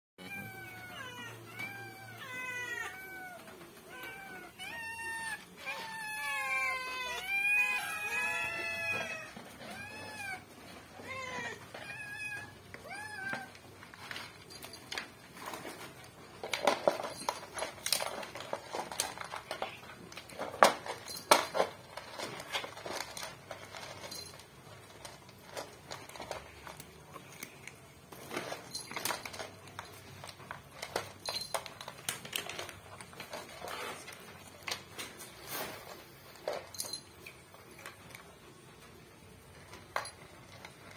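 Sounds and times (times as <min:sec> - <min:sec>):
cats meowing: 0:00.2 - 0:14.0
cats crunching dry kibble: 0:00.2 - 0:40.9.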